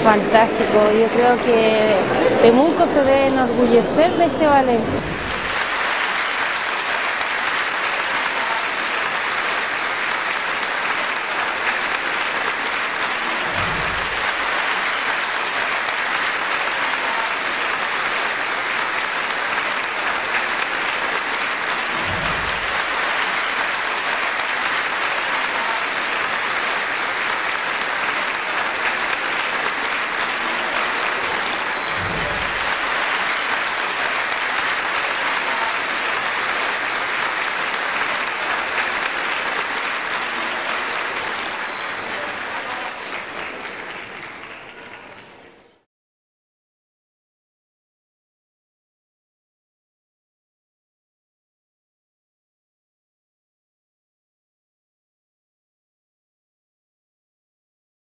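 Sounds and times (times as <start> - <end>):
audience applauding: 0.0 - 45.6.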